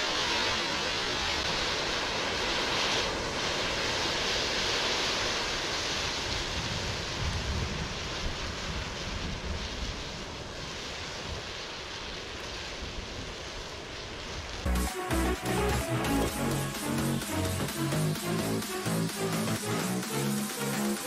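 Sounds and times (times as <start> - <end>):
flames rushing hiss: 0.0 - 21.0
wind buffeting microphone: 6.2 - 11.5.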